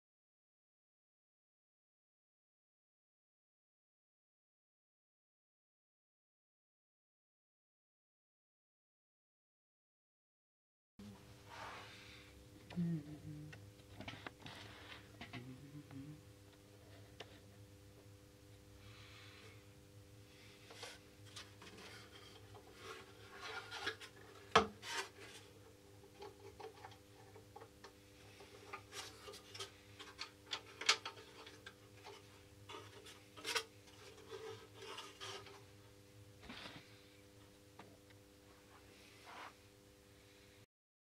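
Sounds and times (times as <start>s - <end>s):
wooden parts handled: 20.6s - 35.7s.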